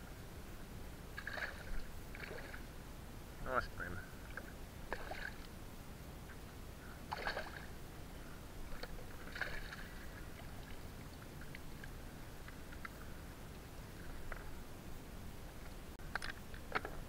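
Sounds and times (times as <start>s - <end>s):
low background noise: 0.0s - 17.0s
water splashing and sloshing: 1.1s - 2.8s, 4.2s - 5.5s, 7.1s - 7.8s, 8.6s - 12.8s.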